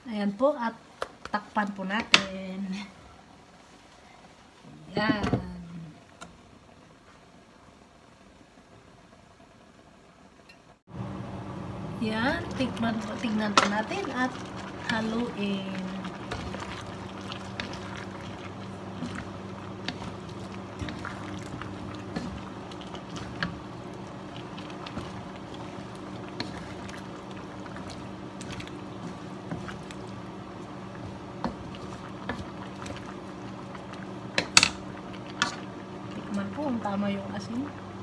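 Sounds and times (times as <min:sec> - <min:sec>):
steady low hum: 0:10.9 - 0:38.0
coconut milk bubbling in a wok: 0:12.4 - 0:38.0.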